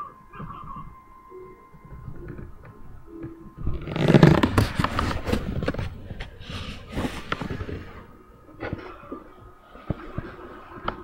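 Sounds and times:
webcam scraping on wooden floor: 0:03.7 - 0:08.0.

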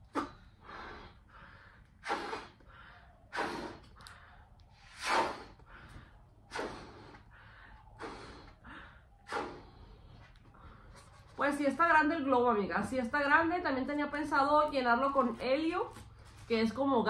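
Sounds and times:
woman blowing up balloon: 0:00.0 - 0:01.3, 0:01.9 - 0:02.7, 0:03.3 - 0:04.2, 0:04.8 - 0:05.7, 0:06.5 - 0:07.2, 0:08.0 - 0:08.6, 0:09.2 - 0:09.8.

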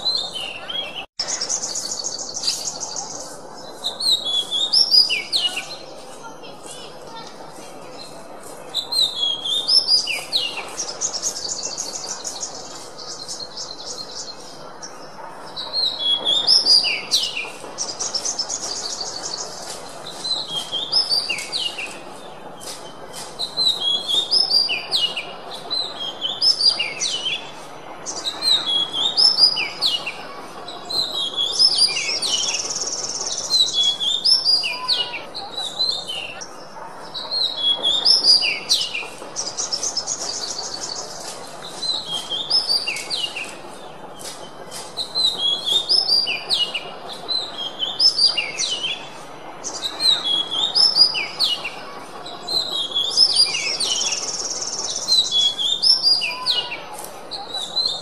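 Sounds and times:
bird singing whistled notes: 0:00.0 - 0:05.8.

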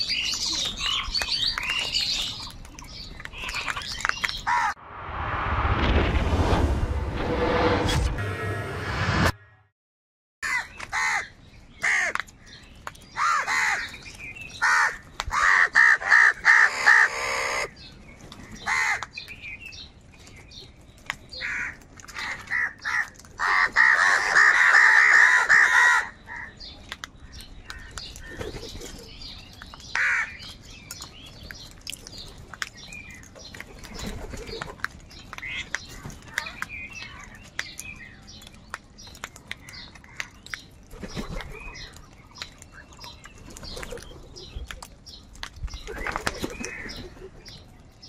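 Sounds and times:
crows cawing: 0:10.4 - 0:12.2, 0:13.2 - 0:13.9, 0:14.6 - 0:17.7, 0:18.7 - 0:19.1, 0:21.4 - 0:26.5, 0:29.9 - 0:30.4.

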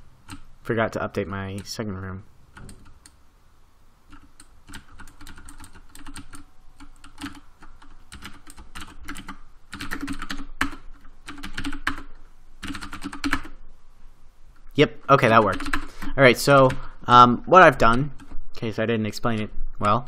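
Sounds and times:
keyboard typing: 0:00.2 - 0:00.5, 0:02.5 - 0:03.2, 0:04.1 - 0:13.6, 0:14.6 - 0:16.9.

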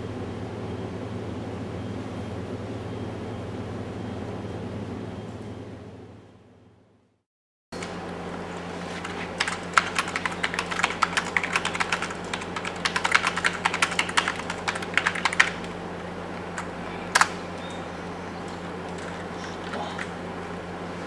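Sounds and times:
steady low hum: 0:00.0 - 0:07.2, 0:07.8 - 0:21.0
keyboard typing clicks: 0:09.0 - 0:15.7.

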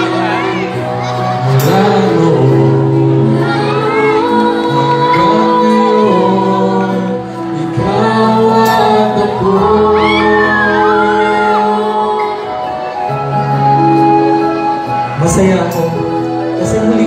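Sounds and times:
man and woman singing duet: 0:00.0 - 0:13.6
backing music: 0:00.0 - 0:17.0.

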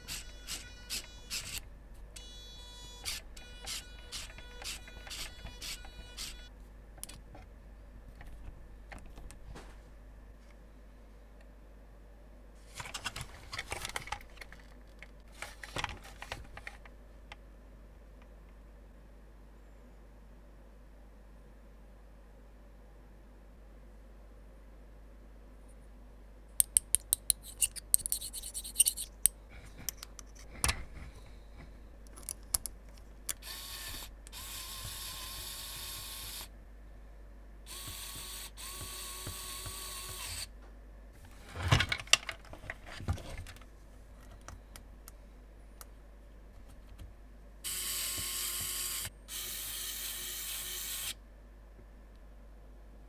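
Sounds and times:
electric screwdriver whirring: 0:00.0 - 0:01.6, 0:02.2 - 0:06.5, 0:33.4 - 0:36.5, 0:37.7 - 0:40.5, 0:47.7 - 0:51.2.

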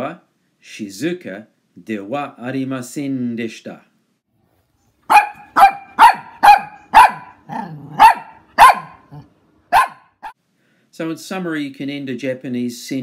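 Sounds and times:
small dog barking: 0:05.1 - 0:10.4.

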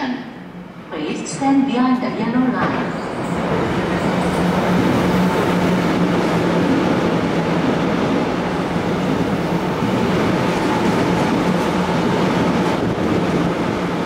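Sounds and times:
electric train passing: 0:00.3 - 0:14.0.

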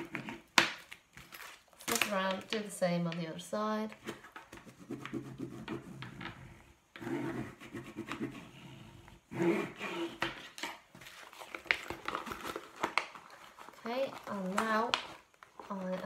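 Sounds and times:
plastic bag crinkling: 0:00.8 - 0:02.7, 0:10.6 - 0:16.0.

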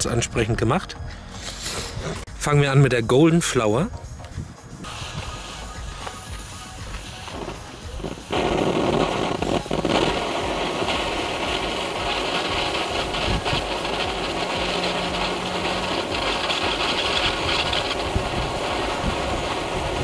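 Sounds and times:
firework fountain hissing: 0:04.5 - 0:20.0.

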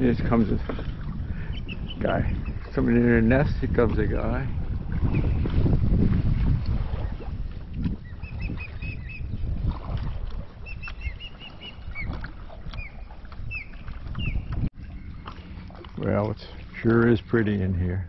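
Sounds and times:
low wind: 0:00.0 - 0:18.0
water noise: 0:00.0 - 0:18.0
birds chirping: 0:00.1 - 0:04.3, 0:08.0 - 0:09.6, 0:10.6 - 0:18.0.

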